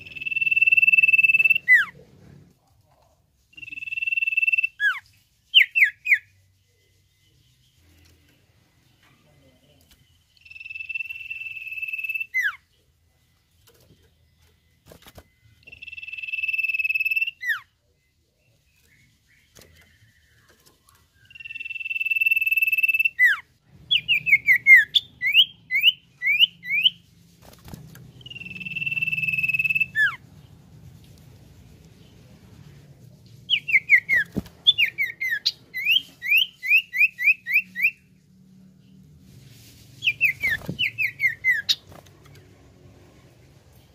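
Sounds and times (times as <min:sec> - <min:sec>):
bird whistling song: 0:00.0 - 0:01.9, 0:03.5 - 0:06.4, 0:10.4 - 0:12.6, 0:15.2 - 0:17.7, 0:18.8 - 0:27.1, 0:28.1 - 0:30.2, 0:33.5 - 0:38.1, 0:40.0 - 0:41.9.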